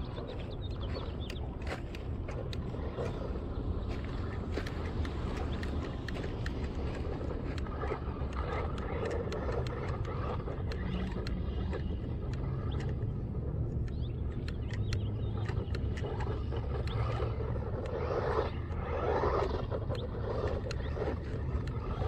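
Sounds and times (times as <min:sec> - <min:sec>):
tyres on gravel: 0:00.0 - 0:13.2
rc car motor: 0:00.0 - 0:22.0.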